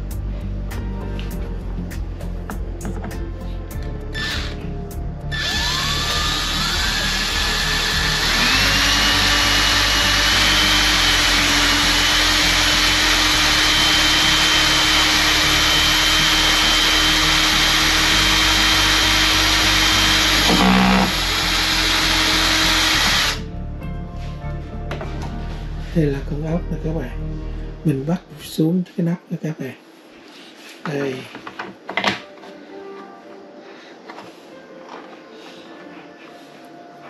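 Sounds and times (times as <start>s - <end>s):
electric drill motor whine: 4.1s - 4.7s, 5.3s - 23.4s.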